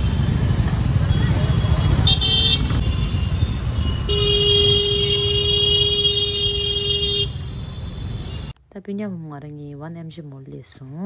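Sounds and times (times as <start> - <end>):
traffic rumble: 0.0 - 11.0
vehicle horn honking: 1.6 - 8.5.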